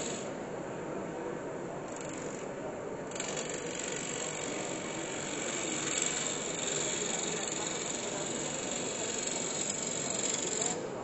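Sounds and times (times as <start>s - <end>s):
gouge scraping wood on lathe: 3.1s - 10.8s.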